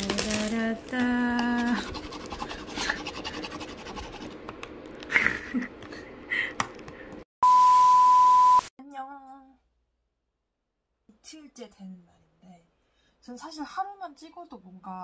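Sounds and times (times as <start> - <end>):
plastic cling wrap crinkling: 0.0 - 1.8
woman's voice: 0.0 - 2.0, 8.8 - 9.6, 11.1 - 15.0
steady electronic beep: 7.4 - 8.6.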